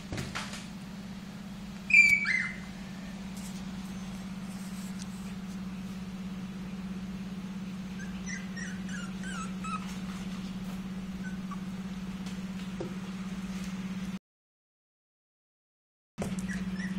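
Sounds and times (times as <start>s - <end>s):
steady low hum: 0.0s - 14.2s
puppy whimpering: 1.9s - 2.7s, 7.9s - 11.8s, 16.2s - 16.9s.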